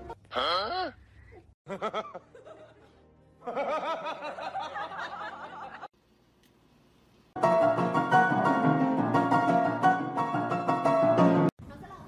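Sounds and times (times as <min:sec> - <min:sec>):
piano music: 0:07.4 - 0:11.5.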